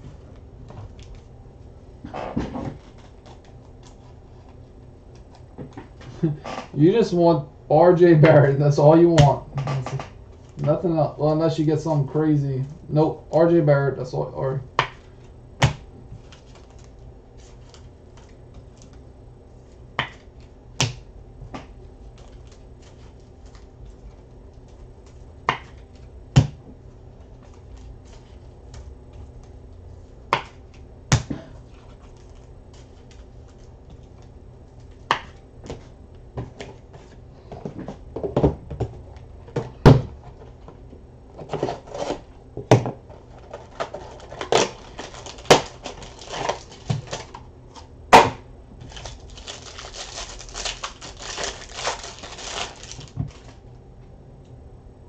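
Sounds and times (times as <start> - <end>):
card wrapper rustling: 16.2 - 20.6, 22.0 - 26.1, 43.0 - 47.9, 48.8 - 53.6.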